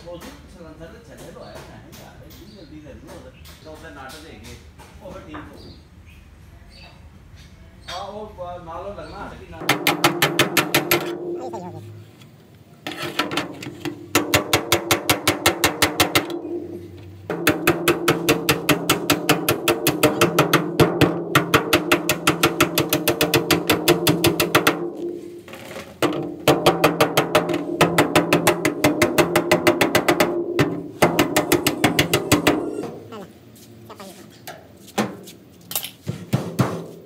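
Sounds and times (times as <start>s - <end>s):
hammer tapping on ringing steel: 31.0s - 33.0s.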